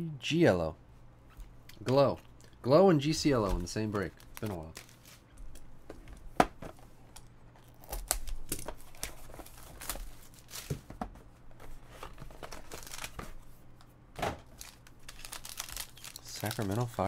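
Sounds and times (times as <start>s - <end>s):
foil wrapper crinkling: 3.4s - 5.2s, 12.4s - 13.2s, 14.5s - 17.0s.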